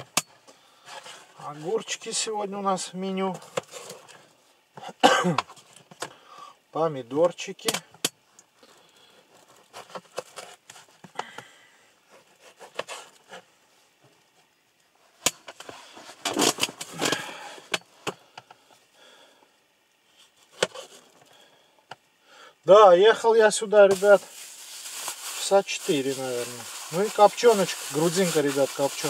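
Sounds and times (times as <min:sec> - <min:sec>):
food packaging rustling: 0:23.8 - 0:29.0.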